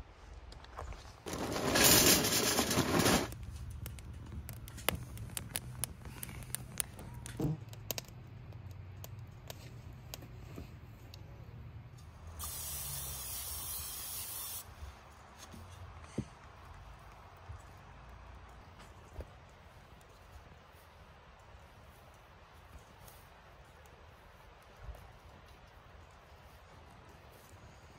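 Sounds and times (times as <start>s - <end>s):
fire crackling and popping: 0.5s - 13.4s, 16.2s - 27.9s
fuel rattling into metal stove: 1.3s - 7.5s
spray can hissing: 12.4s - 14.7s.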